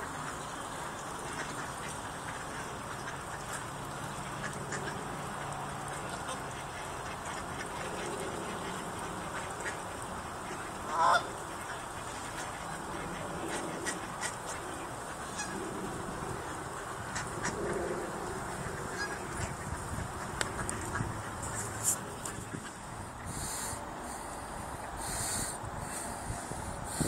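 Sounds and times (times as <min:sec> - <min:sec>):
steady background hiss: 0:00.0 - 0:27.0
geese honking: 0:10.4 - 0:15.6, 0:18.5 - 0:27.0.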